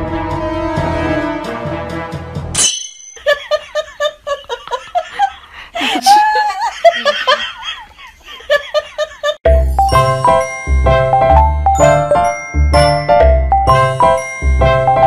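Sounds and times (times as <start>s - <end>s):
music: 0.0s - 2.6s, 9.5s - 15.0s
laughter in bursts: 3.2s - 9.4s.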